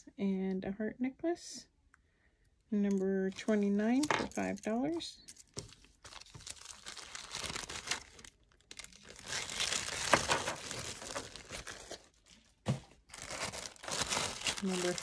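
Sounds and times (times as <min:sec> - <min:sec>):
plastic bag crinkling: 0:05.4 - 0:15.0.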